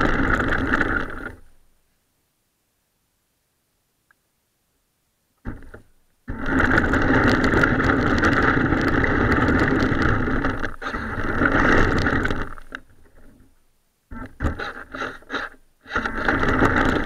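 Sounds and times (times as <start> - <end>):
wheels rumbling over concrete: 0.0 - 1.5, 5.5 - 13.5, 14.1 - 17.0
toy car electric motor: 6.3 - 12.8, 14.1 - 17.0.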